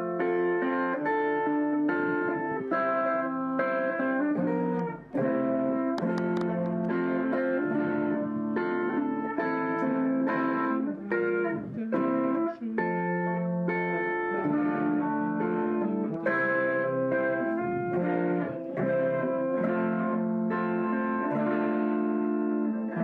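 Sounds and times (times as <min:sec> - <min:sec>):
electric guitar chords and notes: 0:00.0 - 0:23.0.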